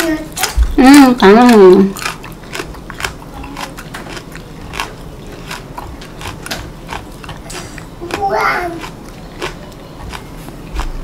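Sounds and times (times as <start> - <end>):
green onion crunching: 0.0 - 11.0.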